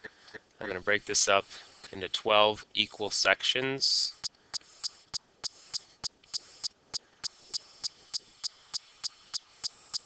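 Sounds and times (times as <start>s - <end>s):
faint background hiss: 0.1s - 9.9s
steady ticking: 4.2s - 10.0s.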